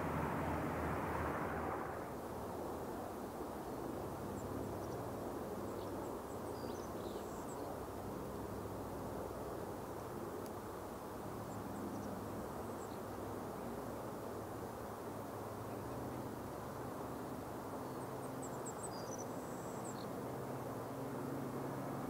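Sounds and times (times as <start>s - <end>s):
piston-engine aircraft drone: 0.0s - 2.1s.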